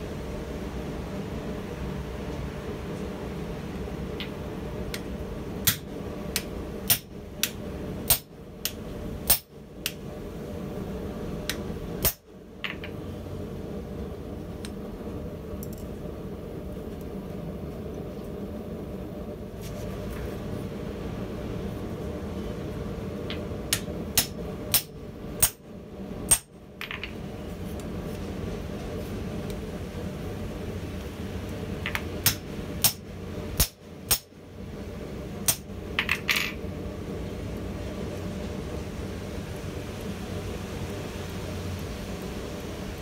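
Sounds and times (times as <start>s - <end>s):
hammer clanking on hot steel: 5.6s - 10.0s, 12.0s - 12.2s, 23.4s - 25.6s, 26.3s - 26.5s, 31.9s - 33.0s, 33.6s - 34.3s.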